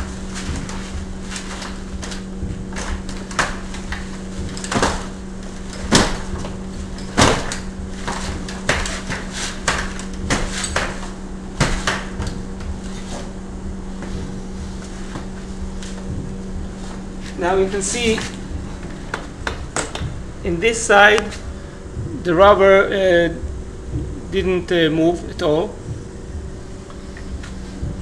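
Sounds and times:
wheelchair frame knocking: 0.0s - 13.3s, 17.8s - 20.2s
steady hum: 0.0s - 28.0s.

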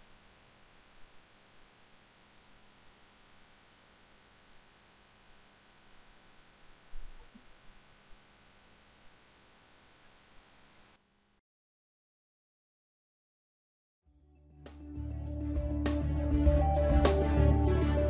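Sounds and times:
faint steady hiss: 0.0s - 11.4s
low electrical hum: 0.0s - 11.4s.

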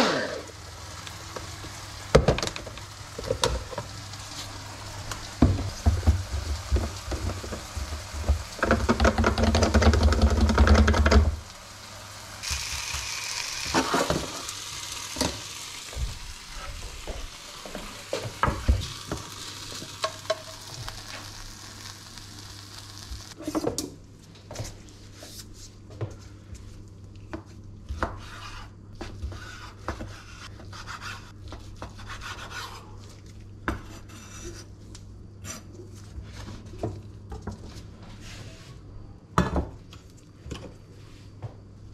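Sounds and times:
oil sizzling in a frying pan: 0.4s - 23.4s.

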